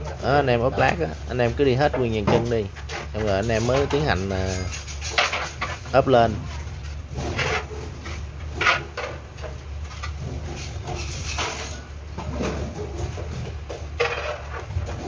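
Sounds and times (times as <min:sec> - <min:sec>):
trowel scraping tile adhesive: 0:02.8 - 0:05.9.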